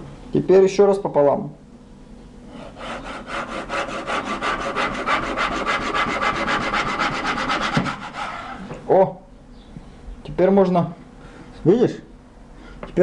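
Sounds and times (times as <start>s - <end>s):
knife sawing on cutting board: 2.5s - 8.7s.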